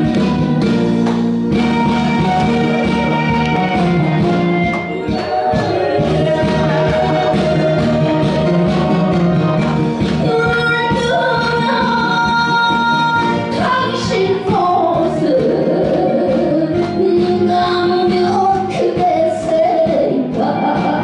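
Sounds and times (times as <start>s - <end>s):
instrumental accompaniment: 0.0s - 21.0s
woman singing into microphone: 4.9s - 8.3s, 10.2s - 21.0s.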